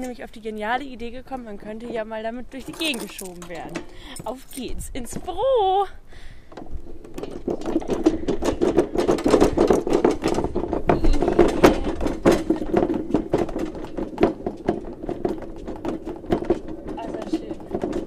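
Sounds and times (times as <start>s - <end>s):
wooden bench rattling over paving: 0.0s - 5.8s, 6.5s - 18.0s.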